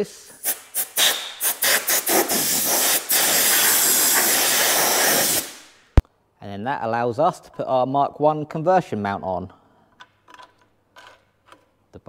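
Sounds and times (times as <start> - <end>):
compressed air blasts hissing: 0.0 - 6.0.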